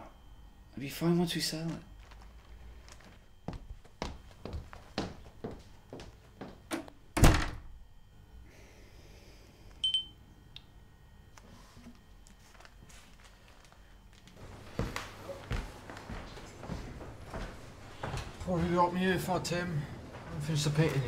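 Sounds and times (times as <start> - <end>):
brief high beep: 9.8 - 10.2.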